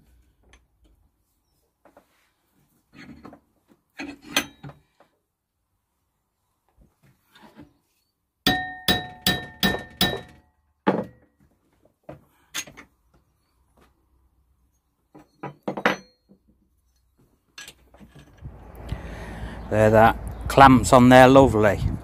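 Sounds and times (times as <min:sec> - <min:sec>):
hammer striking metal bracket: 0:08.5 - 0:10.4.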